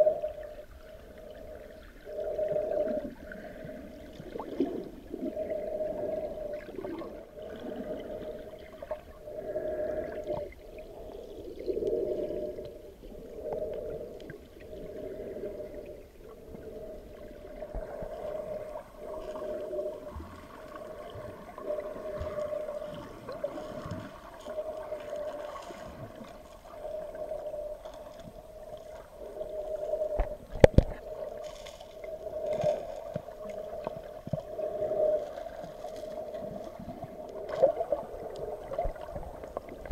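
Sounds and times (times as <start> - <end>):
muffled water sloshing and gurgling: 0.0 - 39.9.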